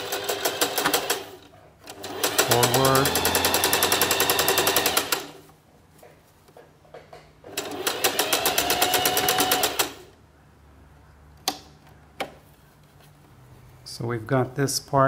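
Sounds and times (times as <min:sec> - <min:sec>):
sewing machine stitching: 0:00.0 - 0:05.4, 0:07.5 - 0:10.1.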